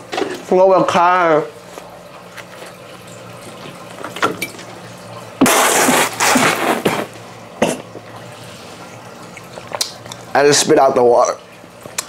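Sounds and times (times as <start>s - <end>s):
person spluttering water: 5.4s - 10.0s.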